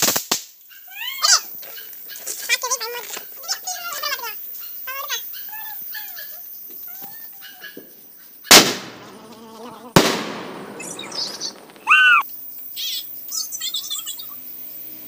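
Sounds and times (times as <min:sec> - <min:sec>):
firework bangs: 0:08.5 - 0:12.2.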